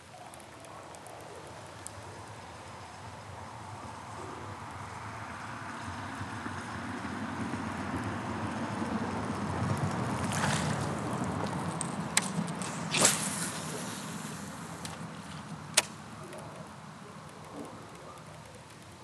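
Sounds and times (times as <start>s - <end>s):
rod and reel clicks: 0.0s - 3.3s, 11.4s - 19.0s
fishing rod cast swish: 12.2s - 14.8s.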